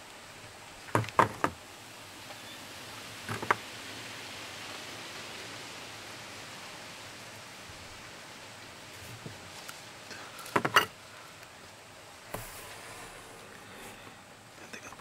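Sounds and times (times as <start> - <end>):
steady background hiss: 0.0 - 15.0
sharp knocks: 0.9 - 1.6.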